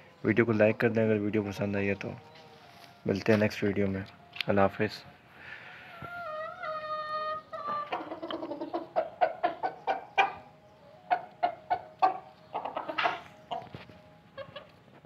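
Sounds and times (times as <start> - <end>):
chicken long call: 5.6 - 10.4
chicken clucking: 5.9 - 15.0.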